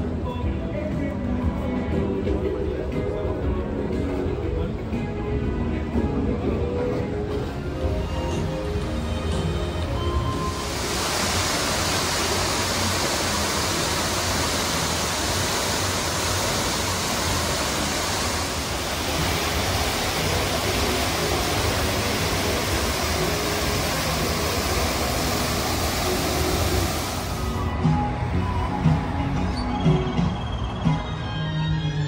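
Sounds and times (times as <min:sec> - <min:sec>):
waterfall rushing into pool: 0:07.4 - 0:27.7.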